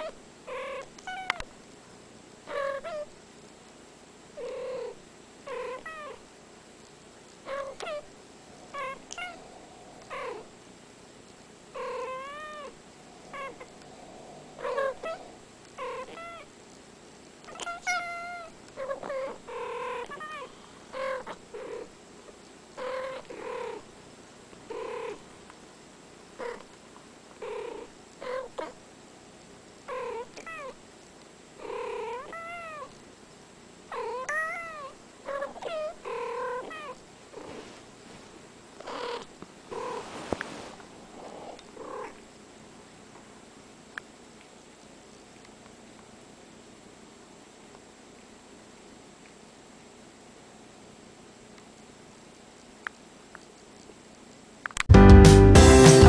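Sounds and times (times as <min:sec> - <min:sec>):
cats chirping trills: 0:02.5 - 0:03.1, 0:04.4 - 0:06.2, 0:07.4 - 0:10.7, 0:11.8 - 0:16.6, 0:17.4 - 0:21.9, 0:22.8 - 0:23.8, 0:31.6 - 0:33.0, 0:33.9 - 0:37.0
cats meowing: 0:07.5 - 0:10.5, 0:11.8 - 0:16.5, 0:17.4 - 0:21.4, 0:34.0 - 0:37.0.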